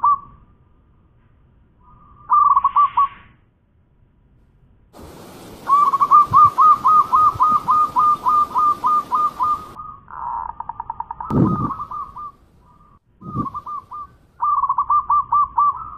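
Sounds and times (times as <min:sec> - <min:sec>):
dove cooing: 0:05.1 - 0:10.2, 0:11.3 - 0:15.9.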